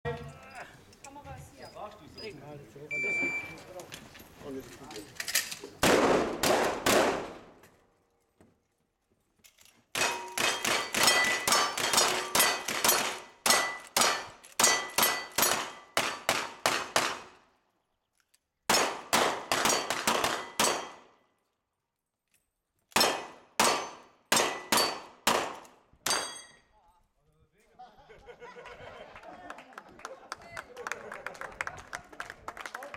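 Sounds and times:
gunshots: 5.8 - 7.6, 10.0 - 17.4, 18.7 - 21.0, 23.0 - 26.3
bullets ringing steel target: 10.0 - 17.2, 18.7 - 21.1, 23.0 - 26.7.

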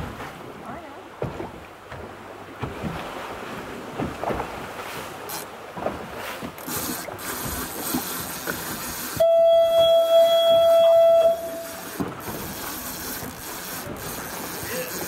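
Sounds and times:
water noise: 0.0 - 15.0
wind: 0.0 - 15.0
steady horn note: 9.2 - 11.8.

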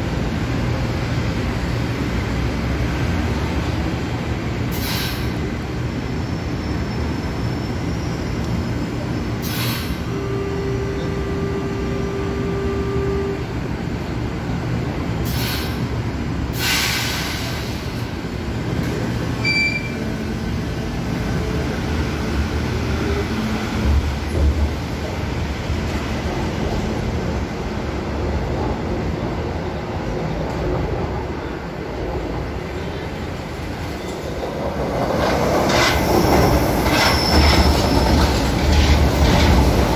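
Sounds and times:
train rumbling: 0.0 - 39.9
brief steady tone: 9.8 - 13.5, 19.4 - 20.1.

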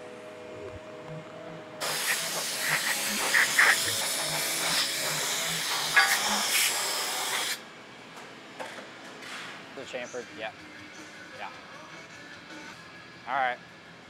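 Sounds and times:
air blow gun hissing: 1.8 - 7.6.

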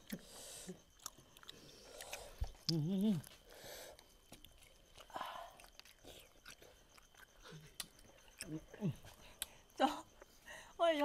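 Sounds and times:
chewing and wet mouth smacks: 0.9 - 3.4, 4.0 - 9.6
person humming: 2.6 - 3.3
breaths: 3.4 - 4.2, 5.1 - 5.6, 10.3 - 10.8.

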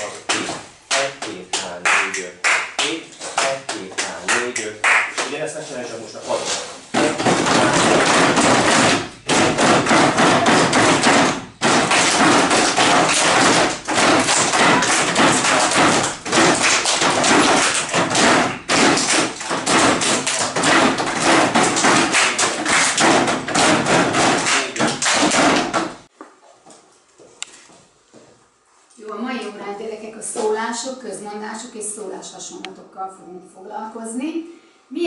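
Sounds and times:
children drumming hands on desks: 0.0 - 5.4, 6.9 - 26.1.

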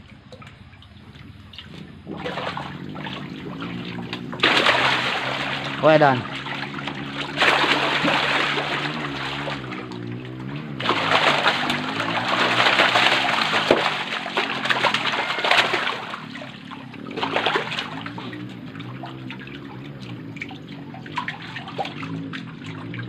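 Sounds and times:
fish thrashing and splashing water: 0.0 - 23.0
water trickling: 0.0 - 23.0.

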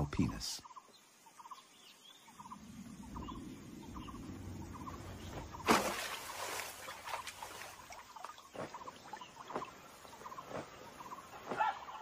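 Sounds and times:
birds chirping: 0.0 - 12.0
low rumble: 2.4 - 5.7.

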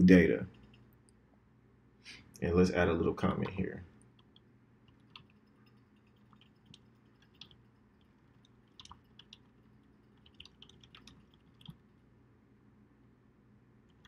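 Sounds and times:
low room hum: 0.0 - 14.0
keyboard keystrokes: 8.4 - 9.5, 10.1 - 11.8.

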